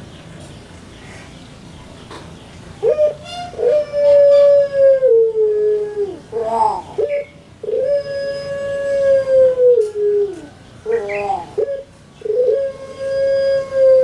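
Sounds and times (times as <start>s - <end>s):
dove cooing: 2.8s - 14.0s.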